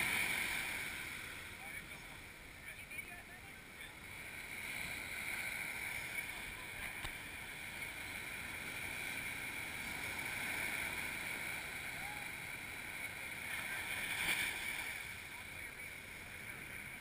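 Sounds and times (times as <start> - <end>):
ocean surf breaking on beach: 0.0 - 17.0.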